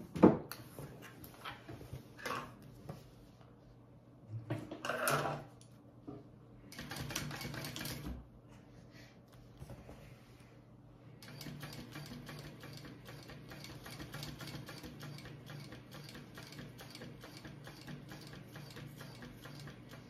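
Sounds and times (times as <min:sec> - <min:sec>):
sewing machine stitching vinyl: 0:06.8 - 0:08.1, 0:11.2 - 0:20.0.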